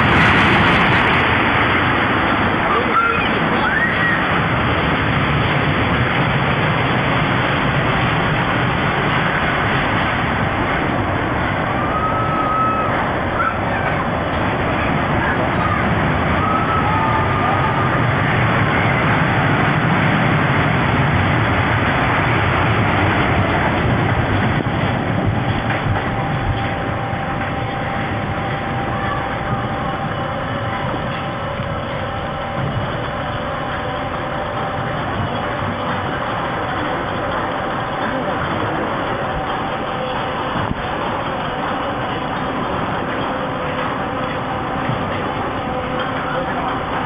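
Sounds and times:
roller coaster train rushing on track: 0:00.0 - 0:47.0.

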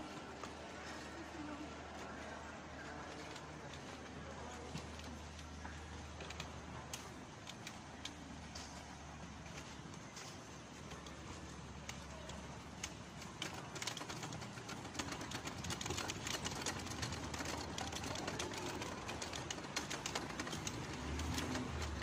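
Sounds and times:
luggage trolley rattling: 0:10.6 - 0:22.0.

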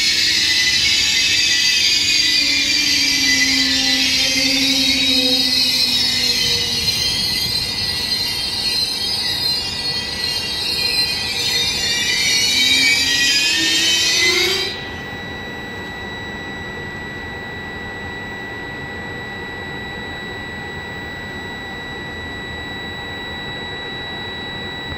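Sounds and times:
electric whine and hum: 0:00.0 - 0:24.9
train brakes squealing: 0:00.0 - 0:24.9.

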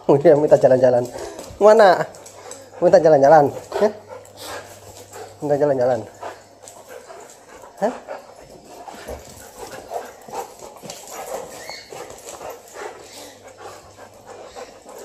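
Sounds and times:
dog whining: 0:11.3 - 0:13.7.

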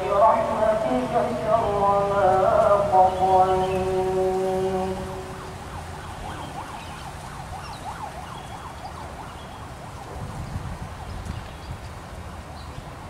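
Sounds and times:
low outdoor rumble: 0:00.0 - 0:07.0
distant siren-like warble: 0:00.0 - 0:11.2.

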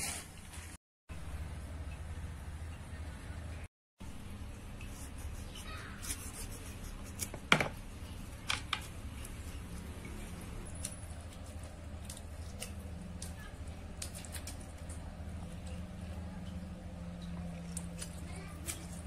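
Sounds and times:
knife cutting limes: 0:04.8 - 0:15.9.

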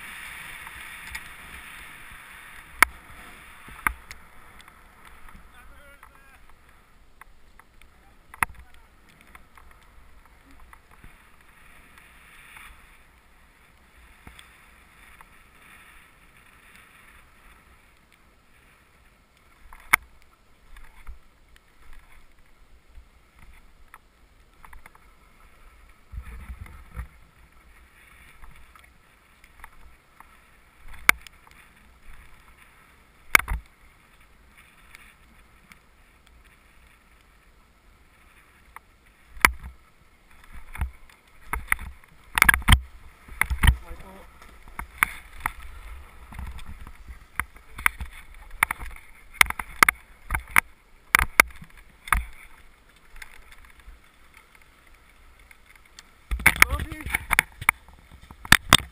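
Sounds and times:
skis hissing on snow: 0:00.0 - 0:05.6.

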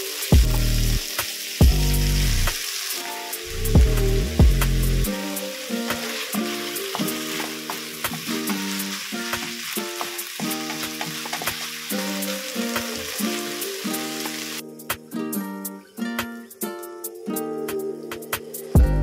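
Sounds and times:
food sizzling in a frying pan: 0:00.0 - 0:15.0
wooden spatula scraping a pan: 0:05.8 - 0:12.0.

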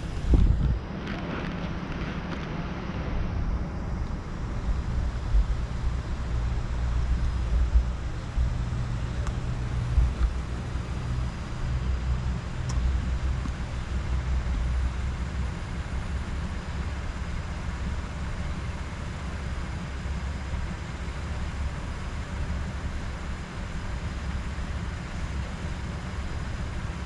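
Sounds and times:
motorcycle engine idling: 0:04.2 - 0:27.0.

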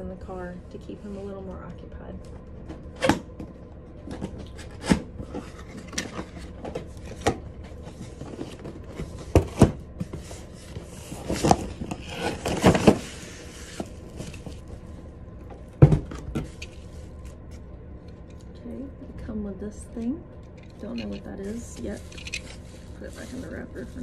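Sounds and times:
sliding and rustling: 0:04.5 - 0:15.1, 0:20.7 - 0:24.0
cardboard scraping and rubbing: 0:04.6 - 0:14.6, 0:21.4 - 0:24.0.

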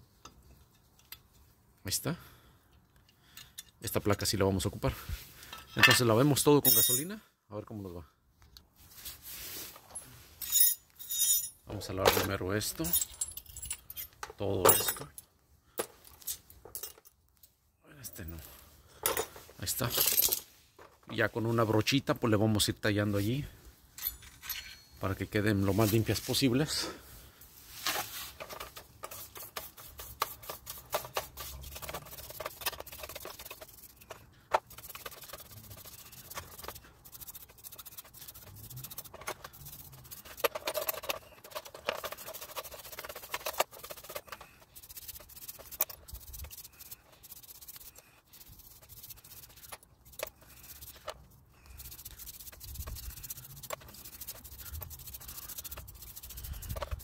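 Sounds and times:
brush scrubbing metal parts in liquid: 0:25.3 - 0:26.8, 0:28.0 - 0:57.0.

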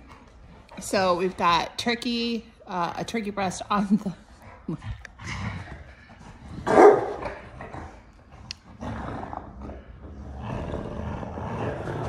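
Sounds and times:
dogs growling: 0:04.2 - 0:12.0.

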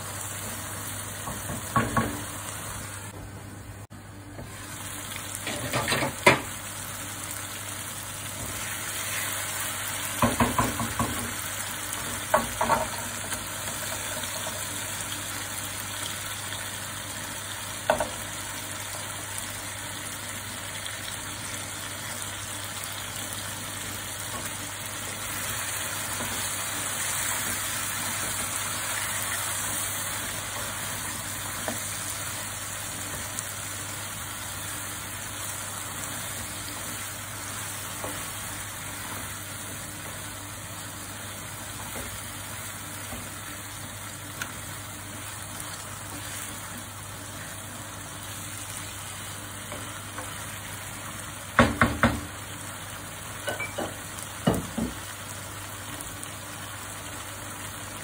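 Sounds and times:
chicken sizzling in a wok: 0:00.0 - 0:58.0.

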